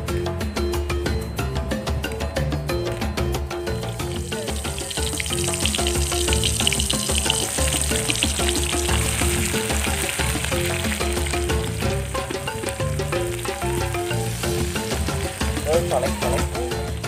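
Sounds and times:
background music with repeating notes: 0.0s - 17.0s
food sizzling in a wok: 3.8s - 17.0s.

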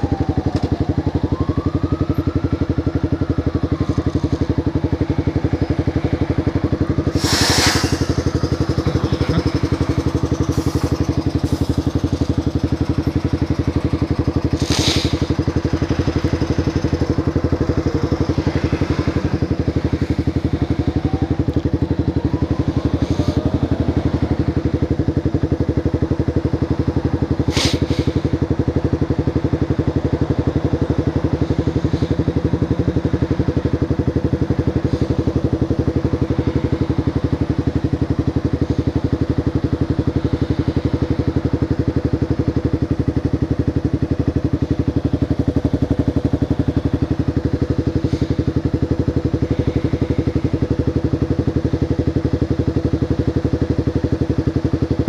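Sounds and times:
motorcycle engine idling: 0.0s - 55.0s.

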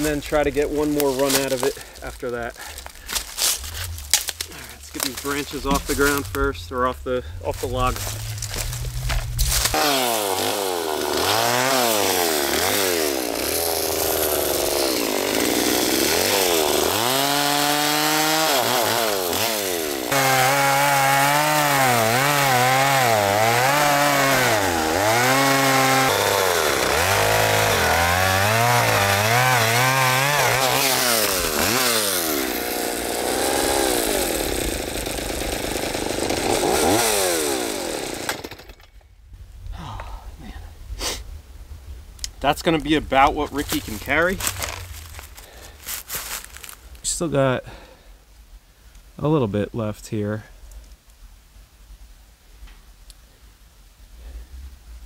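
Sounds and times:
chainsaw cutting log: 0.0s - 6.8s, 7.5s - 39.0s, 42.7s - 46.8s.

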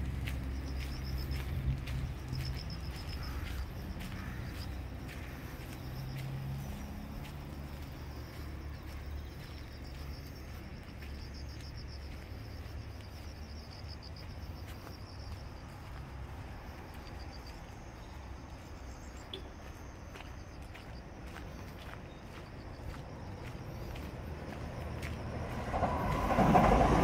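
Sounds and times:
low outdoor rumble: 0.0s - 19.8s
insects trilling: 0.0s - 27.0s.

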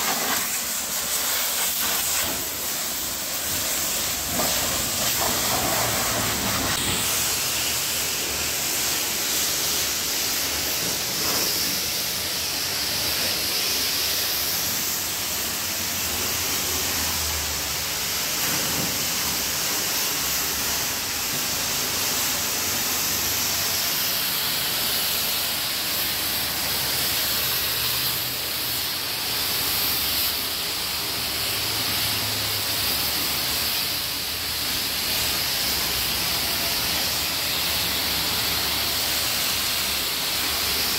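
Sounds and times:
water spattering off surface: 0.0s - 7.8s
pressure washer spraying: 0.0s - 40.9s.

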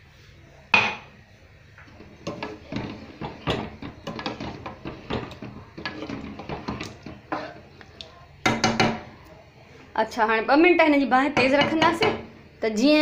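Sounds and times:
wooden spoon scraping metal pan: 1.9s - 7.8s.

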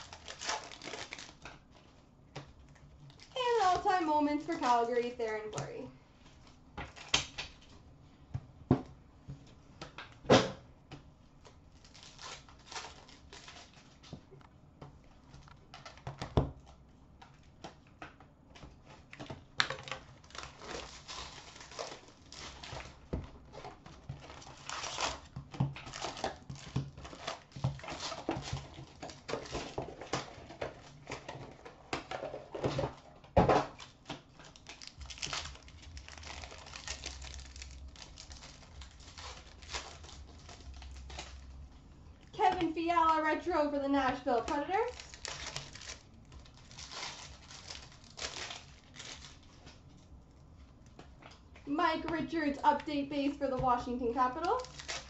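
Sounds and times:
foil packs crinkling and tearing: 0.0s - 5.8s, 6.5s - 7.6s, 11.5s - 14.1s, 18.6s - 49.8s, 52.1s - 55.0s.

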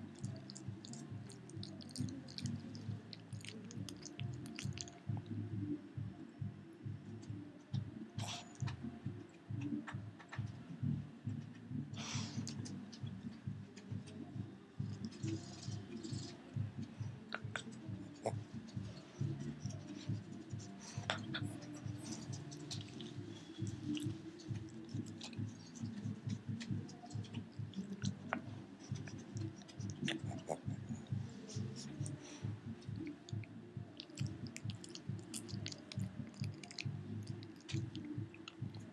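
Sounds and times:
puppy gnawing on a treat: 0.0s - 5.2s, 14.8s - 32.2s, 32.8s - 38.9s
teeth clicks and crunches: 0.0s - 5.3s, 17.3s - 32.2s, 32.8s - 38.9s
background music: 0.0s - 38.9s.

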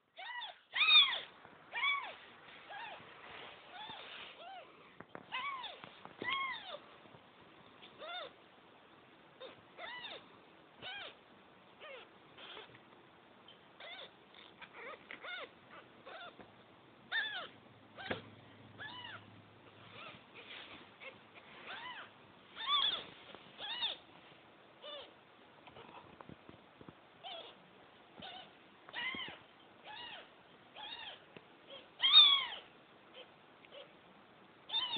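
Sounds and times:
kittens mewing: 17.1s - 19.3s.

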